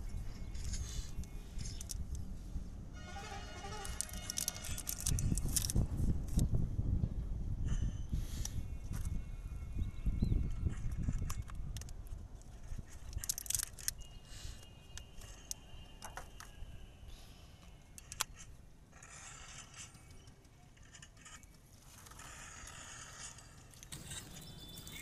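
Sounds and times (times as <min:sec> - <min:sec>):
batteries clicking into compartment: 0:00.5 - 0:02.2, 0:03.8 - 0:06.5, 0:10.7 - 0:16.6, 0:17.7 - 0:18.6.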